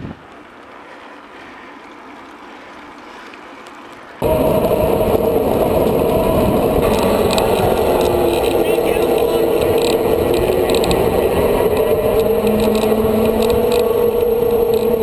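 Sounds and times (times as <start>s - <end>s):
wind rush on microphone: 0.0s - 0.3s, 4.2s - 15.0s
bicycle tyre noise on pavement: 0.0s - 15.0s
faint rolling noise: 0.0s - 15.0s.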